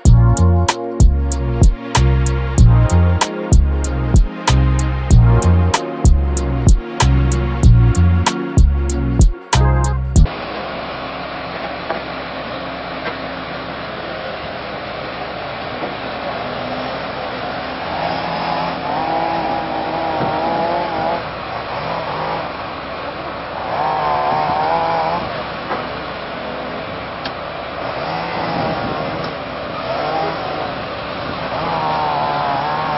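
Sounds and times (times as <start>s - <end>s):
excavator diesel engine running: 0.0s - 32.9s
hydraulic whine: 10.2s - 32.9s.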